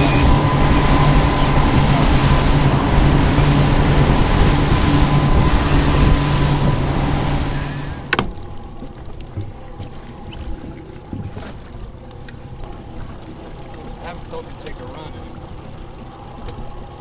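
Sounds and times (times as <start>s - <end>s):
wind noise: 0.0s - 8.4s
boat engine drone: 0.0s - 17.0s
thin steady whine: 0.0s - 17.0s
water rushing: 0.0s - 17.0s.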